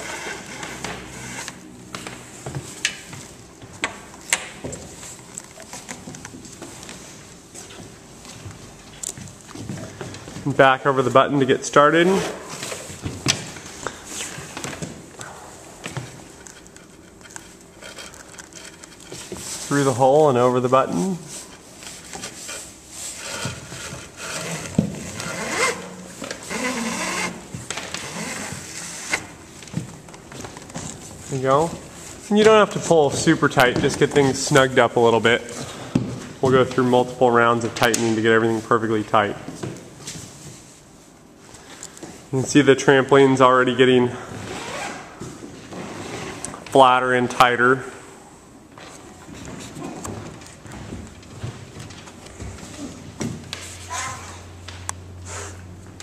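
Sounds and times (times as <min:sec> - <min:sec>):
rope rubbing and scraping: 0:00.0 - 0:03.4, 0:16.0 - 0:29.7, 0:44.4 - 0:46.6.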